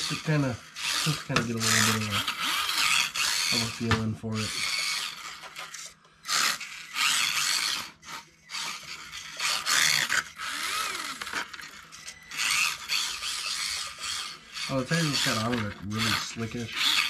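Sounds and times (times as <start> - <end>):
toy car electric motor whining: 0.0 - 17.0
tires scrubbing on concrete: 14.7 - 17.0.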